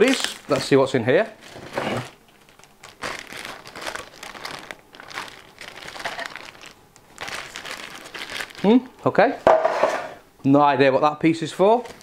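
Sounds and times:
plastic bag crinkling: 0.0 - 8.9, 11.7 - 12.0.

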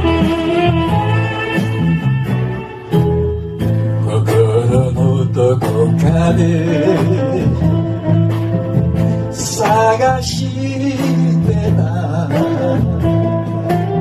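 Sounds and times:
karaoke backing track: 0.0 - 14.0
man singing into microphone: 4.0 - 8.2, 9.3 - 14.0.

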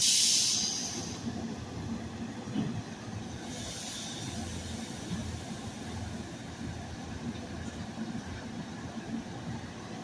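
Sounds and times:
compressed air hissing: 0.0 - 1.2, 3.4 - 5.6
standing train hum: 0.0 - 10.0.

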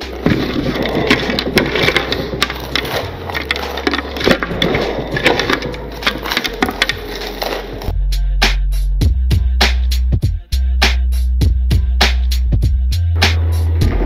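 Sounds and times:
potato chips crunching: 0.0 - 7.9.

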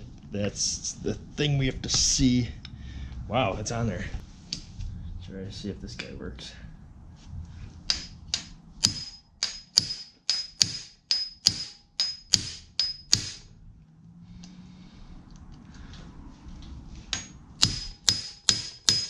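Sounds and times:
hammer striking metal impact driver: 7.9 - 13.5, 17.1 - 19.0.

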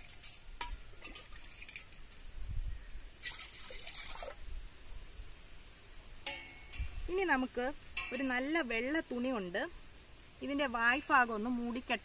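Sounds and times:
water pouring into clay pot: 3.2 - 4.5.

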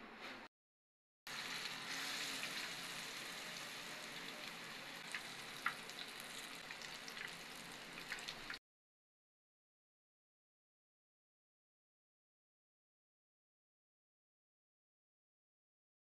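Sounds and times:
fish frying in hot oil: 1.3 - 8.6.

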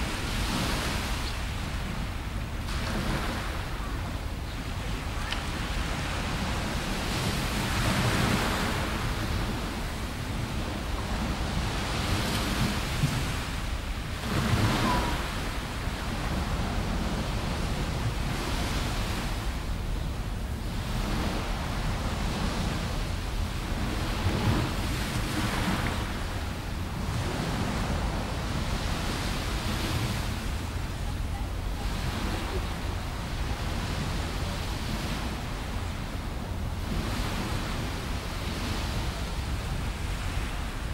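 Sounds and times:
waves breaking on shore: 0.0 - 40.9
wind rumble on microphone: 0.0 - 40.9.

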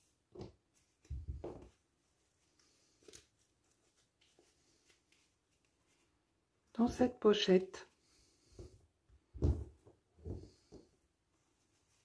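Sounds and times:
soft bump: 9.4 - 10.8.

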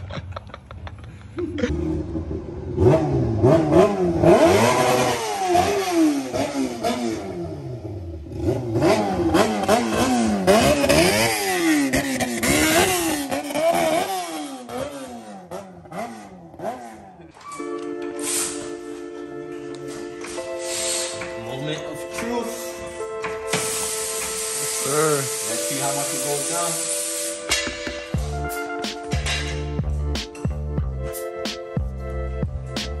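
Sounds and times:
motorcycle engine revving: 1.6 - 17.4.

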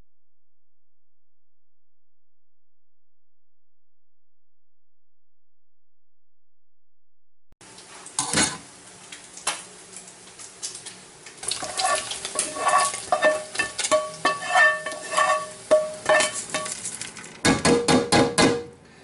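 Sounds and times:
spatula scraping frying pan: 11.4 - 17.0
pan knocking metal strainer: 11.6 - 16.8.

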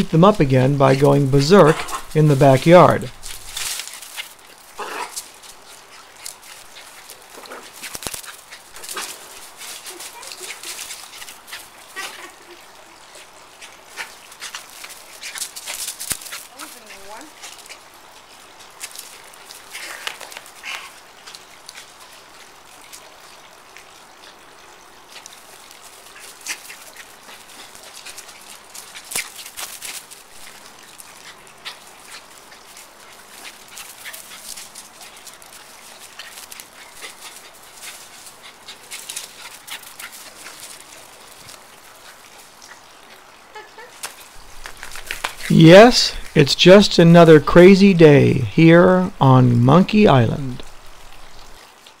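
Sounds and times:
rustles and scuffs on grass: 44.0 - 47.1.

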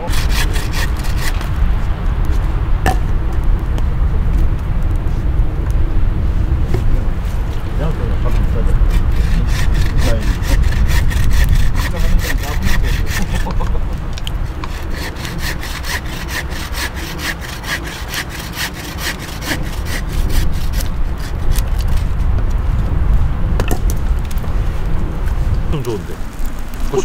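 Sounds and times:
hand saw cutting wood: 0.0 - 1.5, 8.6 - 13.8, 14.4 - 22.0.

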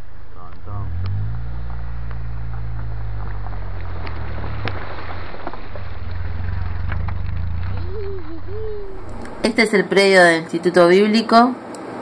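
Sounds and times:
tyres on rough dirt road: 0.0 - 9.8
vehicle engine hum: 0.0 - 9.8
vehicle knocks and rattles: 0.5 - 9.4.

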